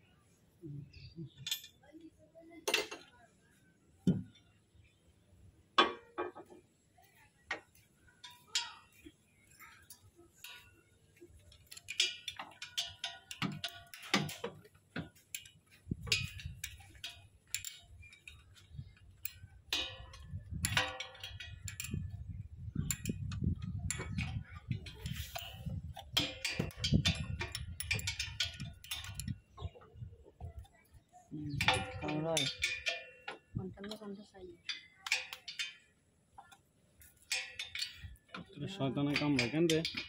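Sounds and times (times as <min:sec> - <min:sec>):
metal tools clicking on engine parts: 0:00.9 - 0:03.2, 0:07.5 - 0:40.0.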